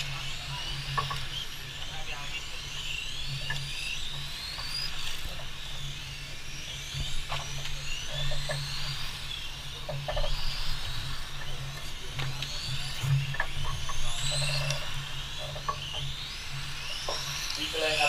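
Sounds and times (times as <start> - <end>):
electric model car motors whining: 0.0 - 18.0.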